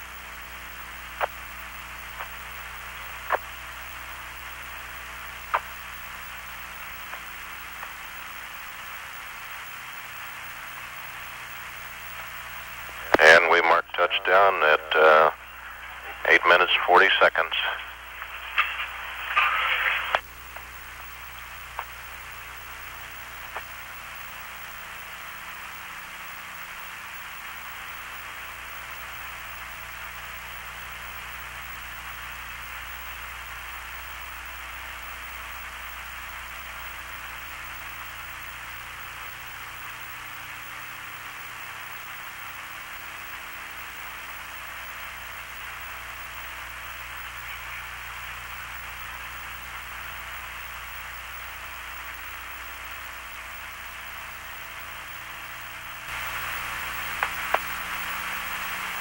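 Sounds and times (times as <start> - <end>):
low mains hum: 0.0 - 59.0
radio channel hiss: 0.0 - 59.0
faint clicks: 21.3 - 22.0, 23.5 - 23.7, 57.2 - 57.8.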